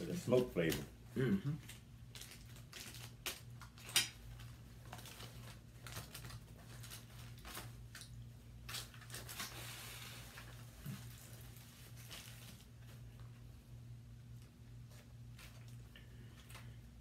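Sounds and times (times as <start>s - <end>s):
low steady hum: 0.0s - 17.0s
fork and foil clicks and crinkles: 1.7s - 9.5s.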